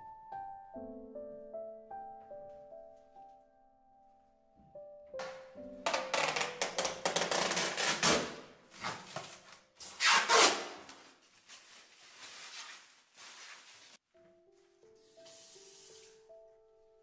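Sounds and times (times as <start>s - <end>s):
plastic film peeling and crinkling: 5.9s - 14.0s.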